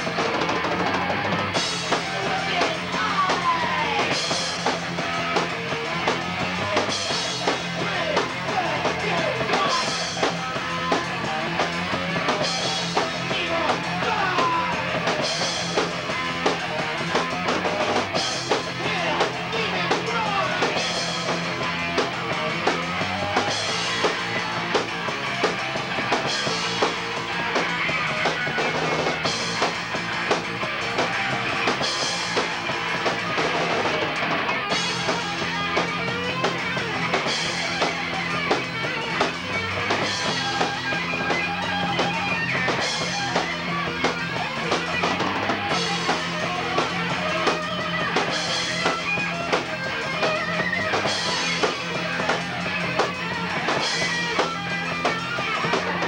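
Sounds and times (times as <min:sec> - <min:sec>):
bass guitar: 0:00.0 - 0:56.0
drum kit: 0:00.0 - 0:56.0
electric guitar: 0:00.0 - 0:56.0.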